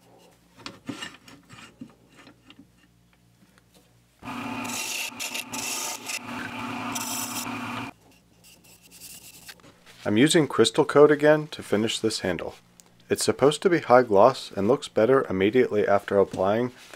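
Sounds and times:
faint lathe motor hum: 4.2s - 7.9s
lathe tool scraping wood: 4.2s - 7.9s.

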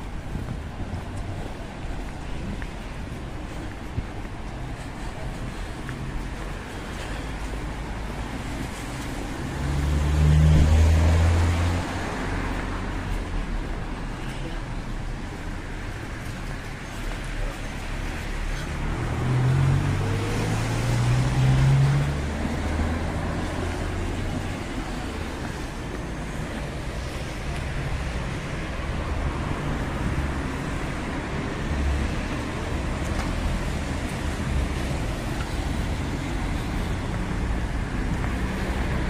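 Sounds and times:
tyres hissing on wet road: 4.6s - 39.0s
car engine passing: 8.0s - 13.1s, 18.8s - 27.3s.

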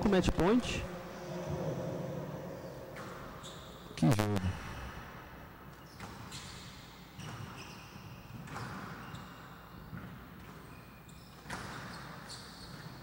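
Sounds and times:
shoes squeaking on floor: 5.7s - 13.0s.

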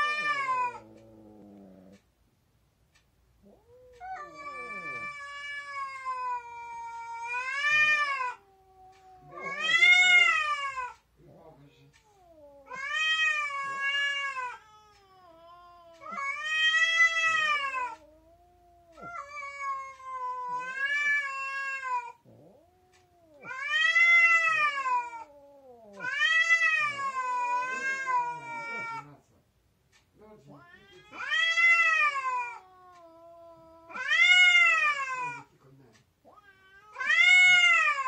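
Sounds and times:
cat yowling: 0.0s - 1.0s, 3.5s - 11.0s, 12.1s - 29.1s, 30.6s - 35.5s, 36.2s - 38.0s
low moaning: 0.0s - 2.0s, 3.4s - 10.7s.

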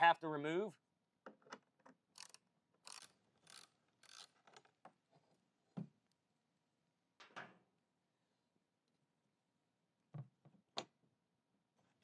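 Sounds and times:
ratchet wrench clicking: 2.2s - 4.3s.

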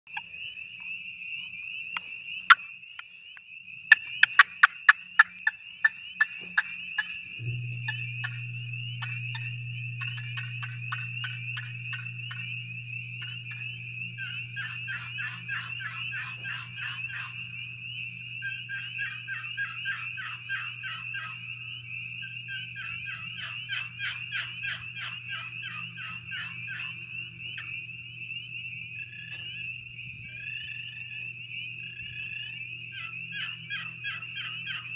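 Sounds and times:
turkey call sharp pops: 6.2s - 17.4s
turkey call yelping notes: 7.9s - 17.8s, 18.4s - 27.8s, 31.9s - 34.9s.

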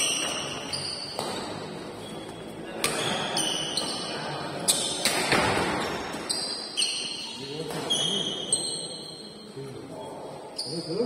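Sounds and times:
racket hitting shuttlecock: 0.0s - 1.8s, 2.8s - 4.1s, 4.7s - 6.3s
shoe squeaks on court floor: 0.0s - 11.0s.

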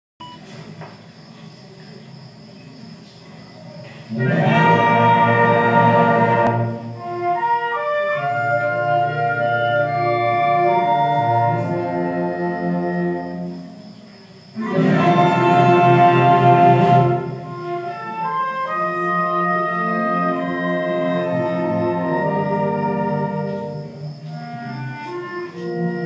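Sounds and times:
solo clarinet: 4.1s - 13.8s, 14.6s - 26.0s
wind band playing: 4.1s - 13.8s, 14.6s - 26.0s.

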